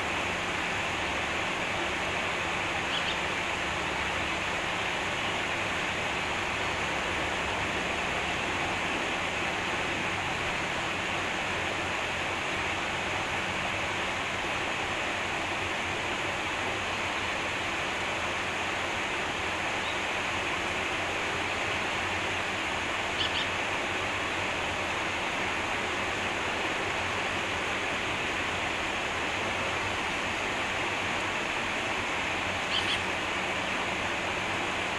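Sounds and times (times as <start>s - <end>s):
stream rushing over stones: 0.0s - 34.9s
bird high double call: 23.2s - 23.5s, 32.7s - 33.1s.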